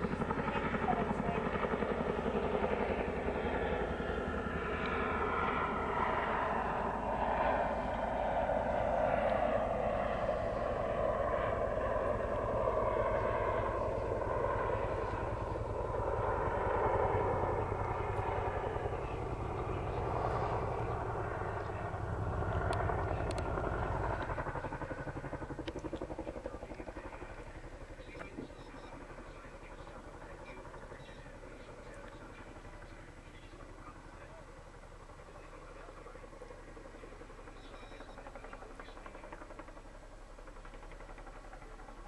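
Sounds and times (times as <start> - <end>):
engine rumble: 0.0 - 42.0
helicopter rotors chopping: 0.0 - 42.0.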